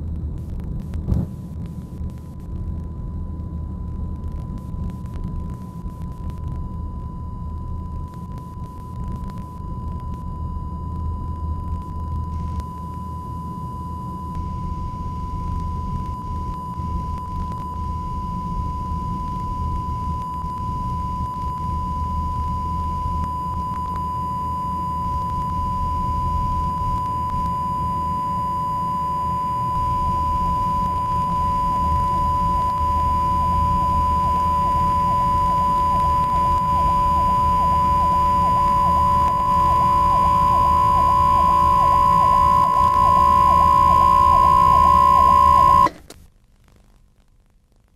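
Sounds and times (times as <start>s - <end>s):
low hum: 0.0s - 46.2s
high electronic tone: 25.5s - 46.0s.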